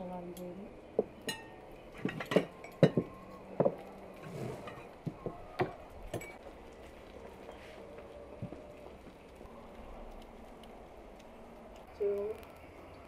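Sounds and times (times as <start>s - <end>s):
glasses and plates clinking on table: 1.2s - 3.8s.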